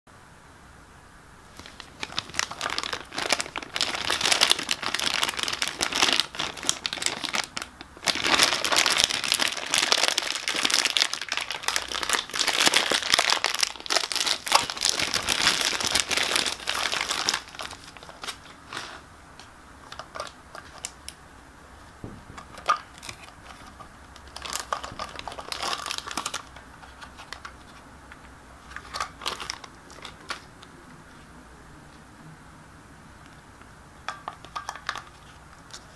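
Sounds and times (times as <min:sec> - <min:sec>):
plastic bag crinkling and tearing: 0:01.5 - 0:19.0, 0:19.8 - 0:21.1, 0:22.3 - 0:27.8, 0:28.6 - 0:30.6.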